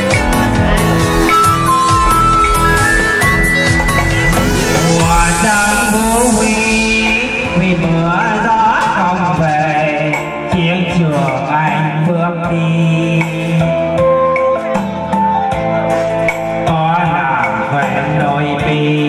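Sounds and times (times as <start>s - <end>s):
pitch-bending melody: 0.0s - 11.0s
low bass notes: 0.0s - 11.6s.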